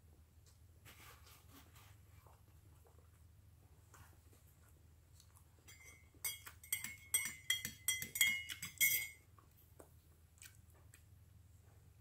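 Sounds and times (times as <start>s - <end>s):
spoon clinking in ceramic mug: 5.7s - 9.2s.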